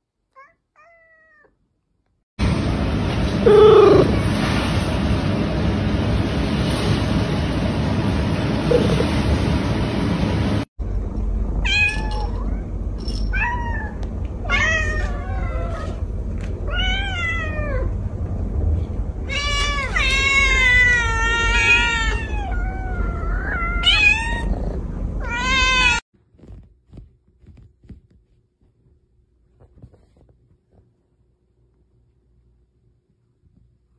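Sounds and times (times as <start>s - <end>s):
cats meowing: 3.4s - 4.1s, 13.4s - 16.0s, 19.3s - 26.0s.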